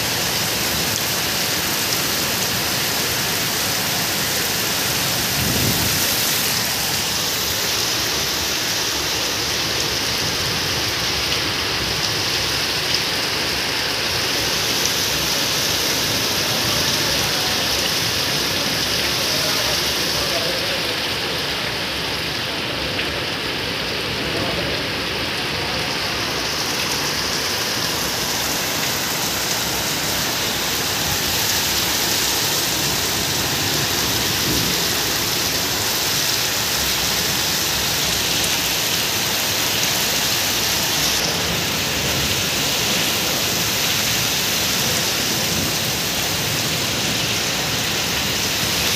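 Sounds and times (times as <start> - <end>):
heavy rain splashing on concrete: 0.0 - 48.9.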